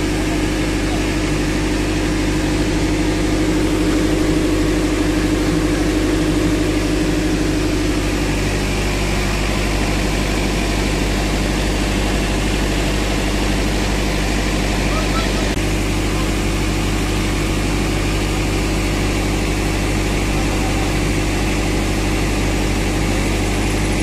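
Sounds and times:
diesel engine idling: 0:00.0 - 0:24.0.

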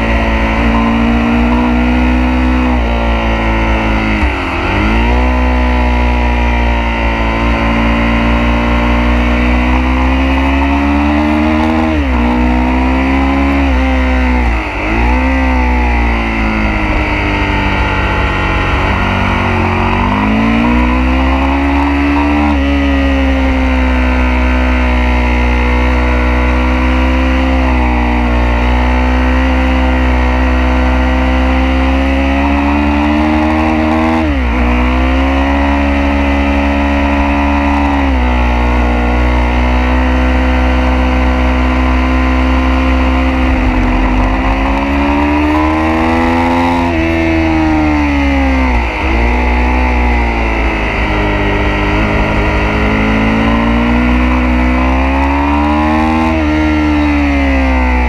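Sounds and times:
motorcycle engine revving: 0:00.0 - 0:58.0
wind rush: 0:48.6 - 0:55.2.

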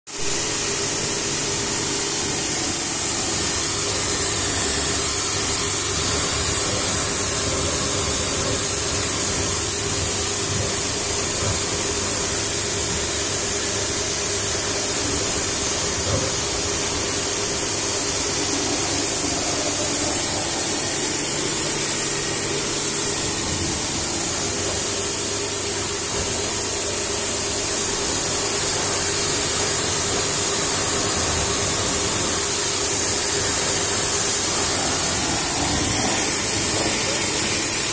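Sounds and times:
high-pressure water jet hissing: 0:00.1 - 0:37.9
pressure washer motor humming: 0:00.1 - 0:37.9.

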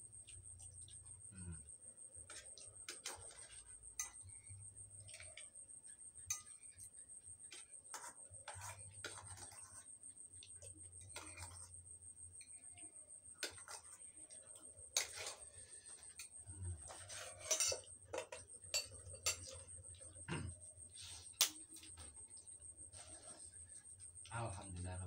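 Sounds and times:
spoons clinking on bowl and plate: 0:02.3 - 0:04.4, 0:06.3 - 0:06.9, 0:07.5 - 0:09.8, 0:15.0 - 0:20.1.

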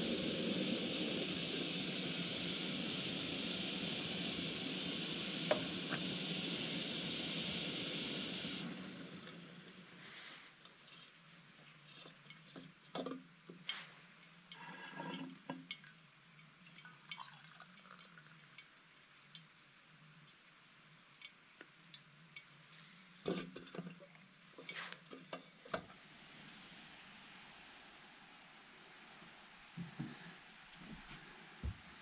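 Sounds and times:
steady low hum: 0:00.0 - 0:10.6.

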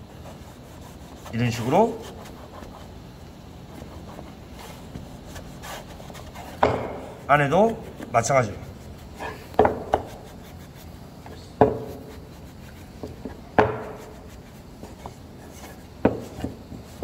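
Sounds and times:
cloth rubbing wood: 0:00.0 - 0:17.0
hollow wooden knocks: 0:06.6 - 0:07.1, 0:09.6 - 0:10.1, 0:11.6 - 0:12.0, 0:13.0 - 0:14.0, 0:16.0 - 0:16.9.

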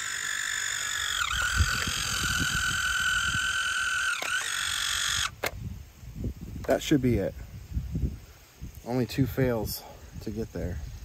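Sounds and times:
motor high whine: 0:00.0 - 0:05.6.

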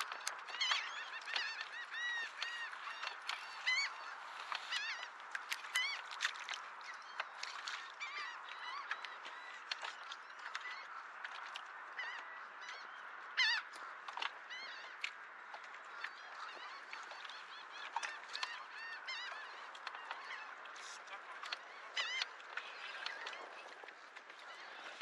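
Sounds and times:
flock of birds calling: 0:00.0 - 0:10.9, 0:15.9 - 0:25.0.

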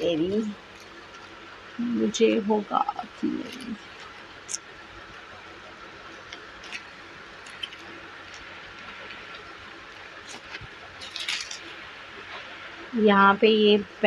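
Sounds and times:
plastic crinkle: 0:00.0 - 0:01.4, 0:02.9 - 0:04.6, 0:06.1 - 0:12.6
steady low hiss: 0:00.0 - 0:14.0
fabric and plastic handling: 0:03.0 - 0:04.6, 0:06.1 - 0:12.6.

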